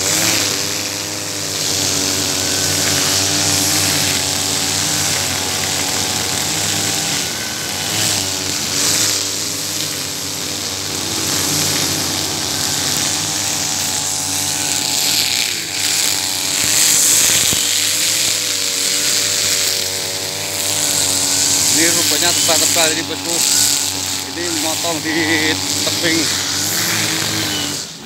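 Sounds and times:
line slicing through grass: 0:00.0 - 0:27.9
brush cutter engine high revs: 0:00.0 - 0:28.0.

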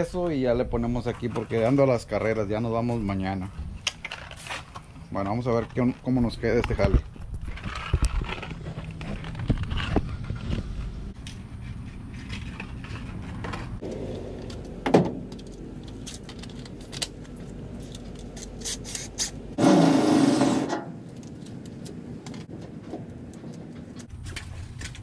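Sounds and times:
handling clicks and scrapes: 0:03.8 - 0:25.0
low steady rumble: 0:08.3 - 0:19.6.

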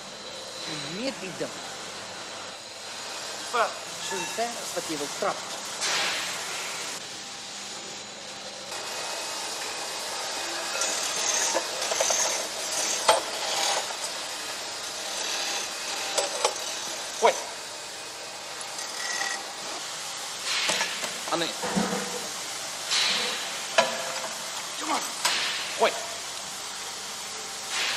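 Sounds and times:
pillar drill scraping metal: 0:10.6 - 0:14.1, 0:18.6 - 0:19.8.

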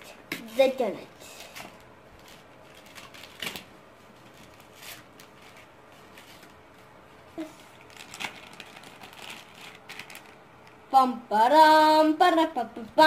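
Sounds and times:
plastic bag crinkling: 0:01.2 - 0:10.9.

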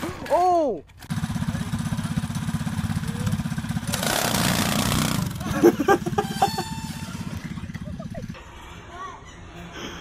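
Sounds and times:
go-kart engine running: 0:01.0 - 0:08.4
quad engine running: 0:01.0 - 0:08.4.

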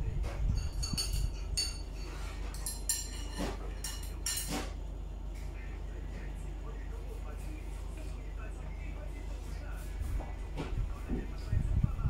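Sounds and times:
spoon clinking against ceramic bowl: 0:00.5 - 0:04.5.

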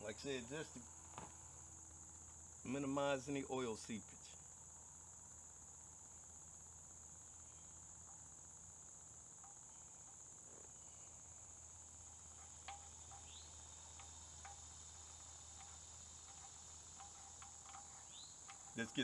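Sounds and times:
high insect trill: 0:00.0 - 0:19.0
faint ticks: 0:09.3 - 0:19.0.

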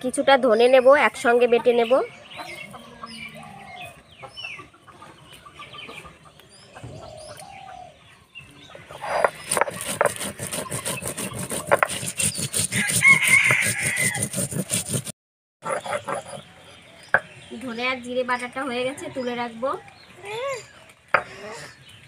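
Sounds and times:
birds calling: 0:00.0 - 0:22.0
stone roller scraping grinding stone: 0:09.0 - 0:16.5.

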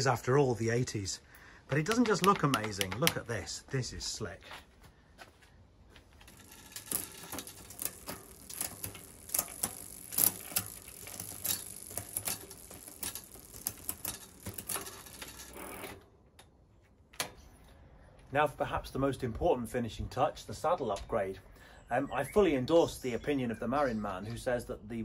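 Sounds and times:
gear change clicks: 0:01.7 - 0:03.3, 0:06.2 - 0:16.5
bicycle chain hissing: 0:06.3 - 0:15.9.

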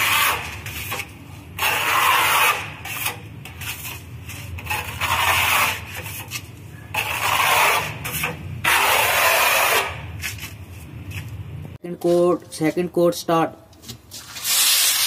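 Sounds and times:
hand tool scraping cement wall: 0:00.0 - 0:10.9.

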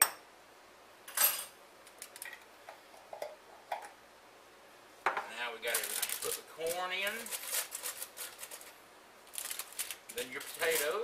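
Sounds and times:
rustle: 0:05.6 - 0:11.0.

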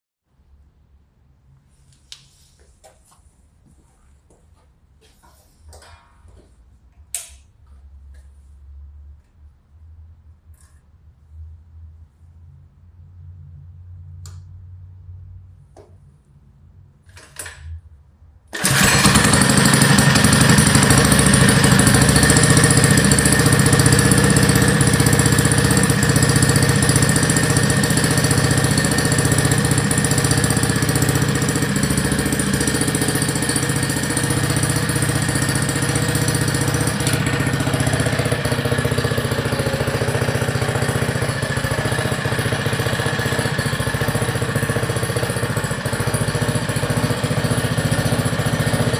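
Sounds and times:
mini bike engine running: 0:18.6 - 0:48.9.

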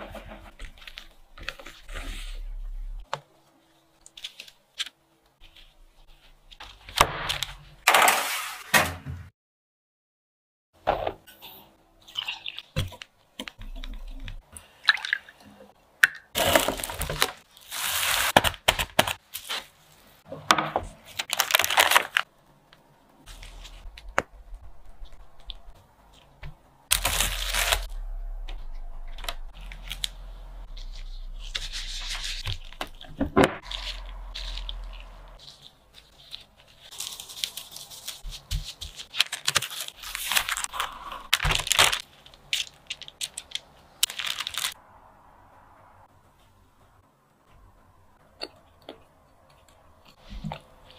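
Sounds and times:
low hum: 0:01.2 - 0:03.0, 0:23.3 - 0:25.9, 0:26.9 - 0:35.4
rustling and scraping: 0:23.2 - 0:39.4.

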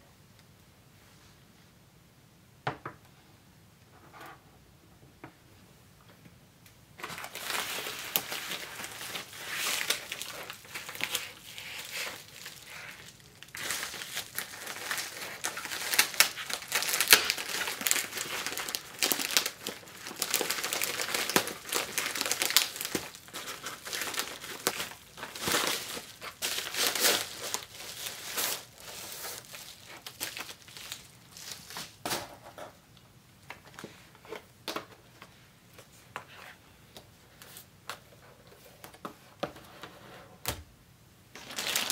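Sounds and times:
plastic packaging crinkling: 0:07.0 - 0:32.0, 0:41.3 - 0:41.9.

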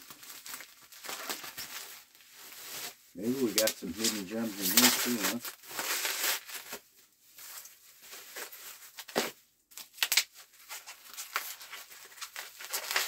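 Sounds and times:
plastic wrap rustling and tearing: 0:00.0 - 0:13.0.

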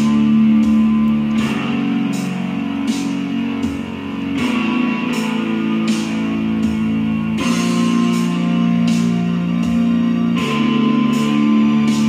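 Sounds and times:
symphonic metal with guitars: 0:00.0 - 0:12.0.

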